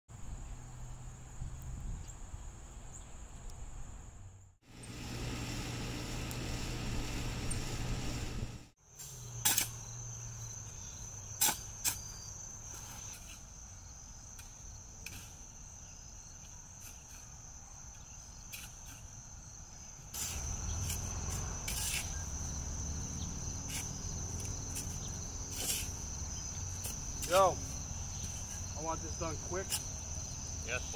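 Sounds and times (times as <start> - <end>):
insects trilling: 8.8 - 30.9
shovels striking dirt: 9.0 - 10.0, 10.8 - 13.6, 14.3 - 15.6, 18.4 - 19.2, 20.1 - 28.8.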